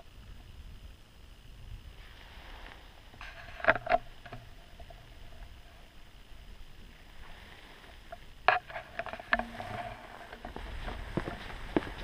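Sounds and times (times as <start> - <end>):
sharp knocks and clicks: 8.5 - 9.7
footsteps on forest trail: 9.4 - 12.0.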